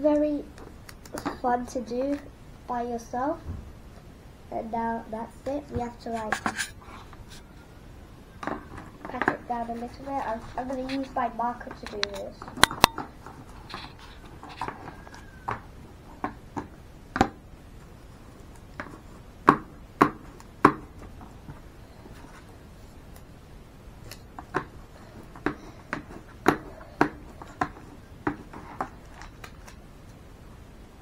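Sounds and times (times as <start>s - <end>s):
marker tapping on tabletop: 18.8s - 20.9s.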